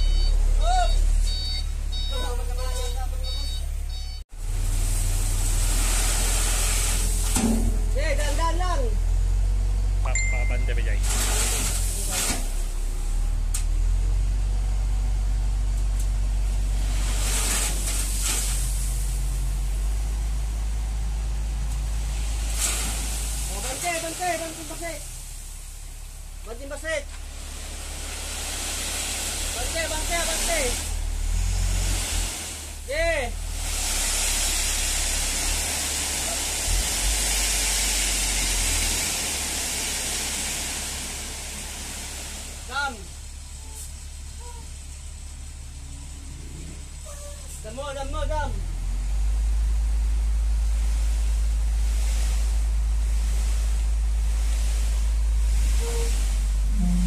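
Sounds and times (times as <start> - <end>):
diesel truck engine droning: 0.0 - 57.0
aggregate unloading: 10.3 - 14.0, 16.4 - 20.2, 21.4 - 25.4
short hiss bursts: 22.4 - 25.6.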